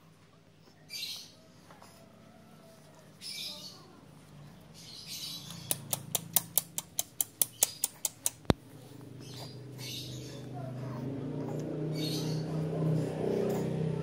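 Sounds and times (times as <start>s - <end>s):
fast sharp clicks: 5.7s - 8.6s.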